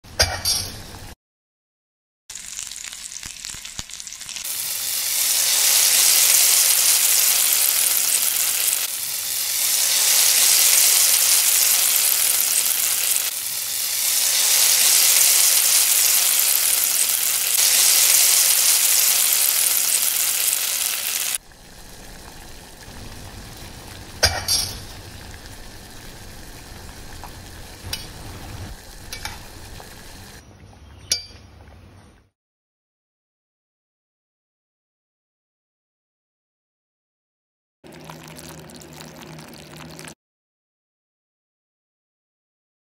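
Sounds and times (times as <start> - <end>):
sausage sizzling in a pan: 2.3 - 30.4.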